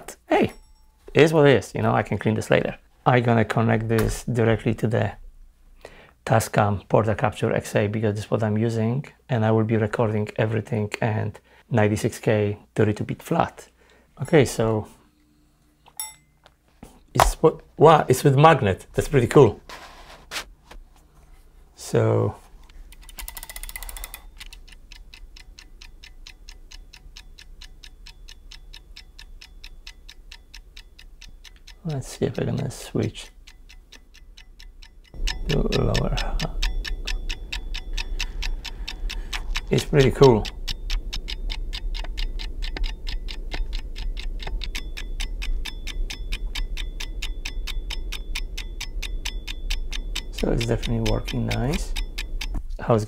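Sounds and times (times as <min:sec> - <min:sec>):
low mains hum: 0:00.0 - 0:53.0
steady even ticking: 0:22.7 - 0:53.0
fast run of clicks: 0:22.9 - 0:26.0, 0:36.0 - 0:52.6.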